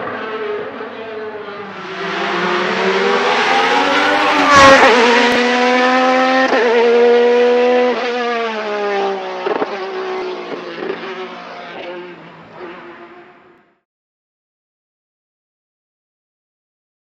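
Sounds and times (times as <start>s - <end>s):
race car engine at high revs: 0.0s - 13.5s.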